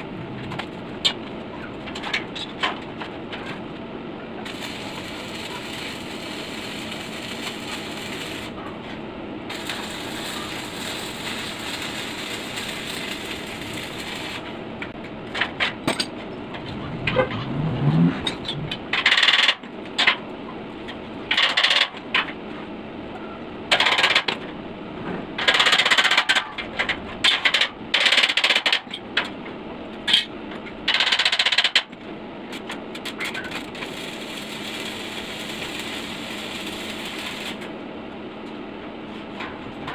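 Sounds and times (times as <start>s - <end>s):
arc welding crackle: 4.4s - 14.9s, 32.5s - 37.8s.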